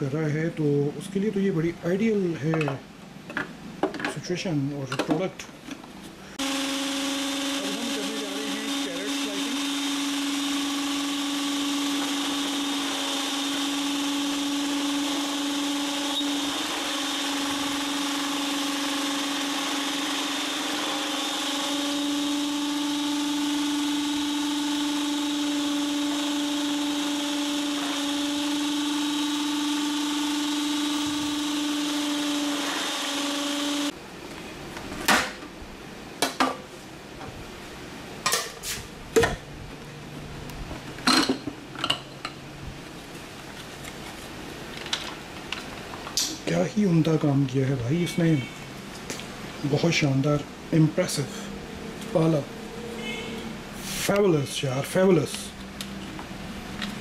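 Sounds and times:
food processor motor running: 0:06.4 - 0:33.9.

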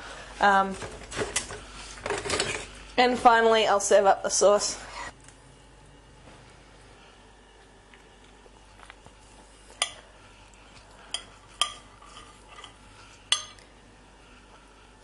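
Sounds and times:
utensils clinking on plate: 0:11.1 - 0:13.6
utensils scraping on plate: 0:11.1 - 0:13.6.

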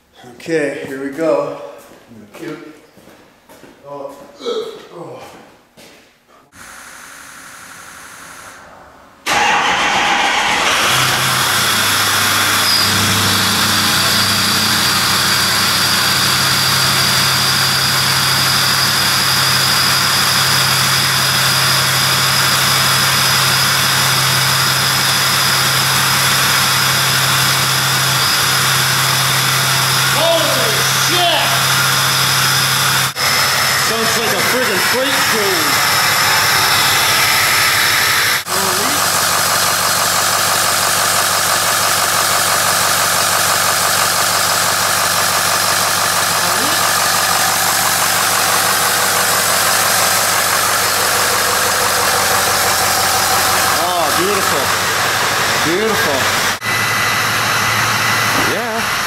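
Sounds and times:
high turbo whistle: 0:06.6 - 0:38.6, 0:46.4 - 0:58.4
diesel engine idling: 0:09.3 - 0:59.0.

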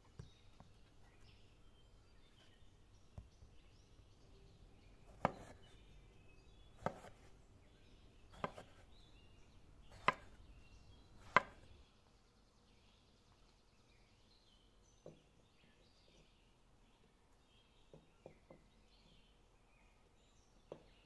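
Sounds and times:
cleaver chopping on stone slab: 0:09.9 - 0:10.3, 0:11.2 - 0:11.7.

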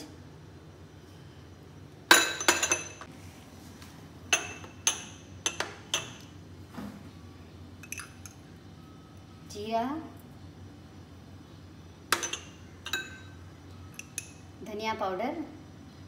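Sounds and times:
spoon clinking against glass bowl: 0:04.3 - 0:06.3, 0:07.8 - 0:08.4, 0:12.1 - 0:14.4.

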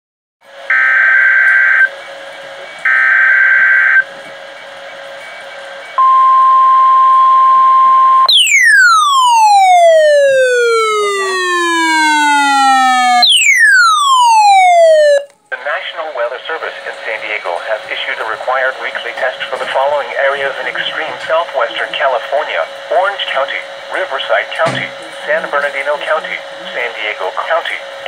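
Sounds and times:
siren sweeping down in pitch: 0:00.7 - 0:01.9, 0:02.9 - 0:04.0, 0:06.0 - 0:15.3
steady high alert tone: 0:06.0 - 0:15.3
faint radio static: 0:14.8 - 0:27.8.

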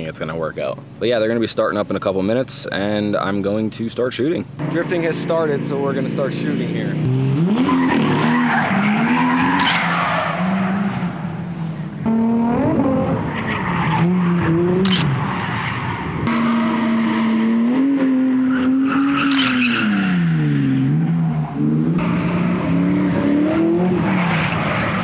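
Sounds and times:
car engines revving: 0:04.4 - 0:25.0
tyres squealing and skidding: 0:07.2 - 0:11.4, 0:12.9 - 0:22.4.

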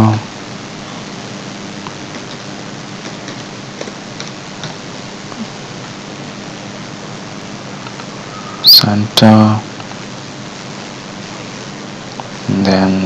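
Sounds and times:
steady background hiss: 0:00.0 - 0:13.0
computer keyboard clicks: 0:03.0 - 0:04.8.

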